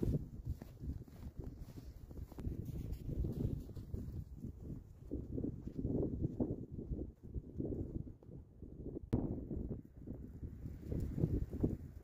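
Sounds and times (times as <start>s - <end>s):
footsteps in snow: 0.0s - 6.4s.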